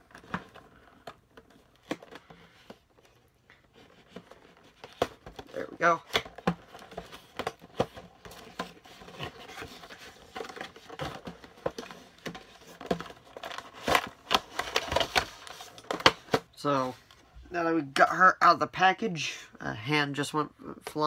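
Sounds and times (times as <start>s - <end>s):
plastic tray crinkling and clicking: 0.0s - 16.6s.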